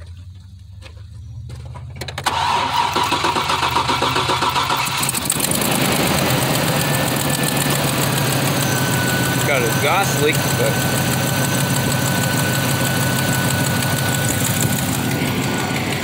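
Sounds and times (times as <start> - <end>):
car engine idling: 0.0 - 16.0
engine ticking: 0.0 - 16.0
starter cranking engine: 2.0 - 16.0
person speaking: 9.4 - 10.8.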